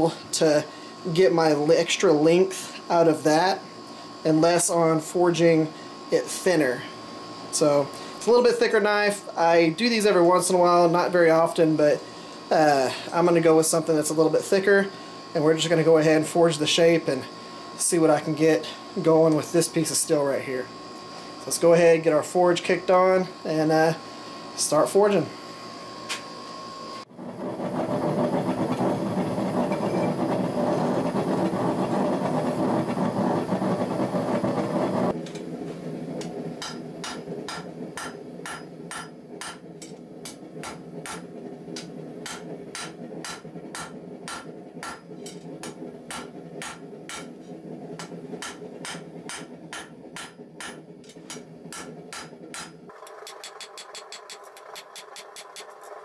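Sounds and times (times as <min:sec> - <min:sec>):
forge roaring: 0:26.6 - 0:52.2
hammer striking steel on anvil: 0:36.2 - 0:47.4, 0:48.0 - 0:55.8.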